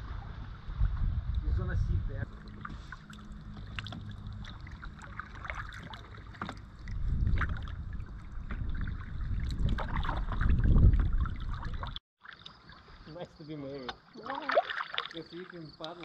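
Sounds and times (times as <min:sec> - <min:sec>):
wind buffeting microphone: 0:00.0 - 0:12.0
water lapping at hull: 0:02.1 - 0:16.0
paddle strokes splashing: 0:02.2 - 0:16.0.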